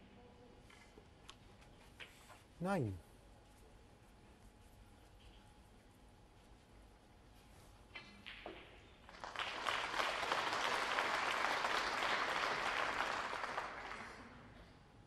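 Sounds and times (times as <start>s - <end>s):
audience applauding: 9.1s - 14.5s.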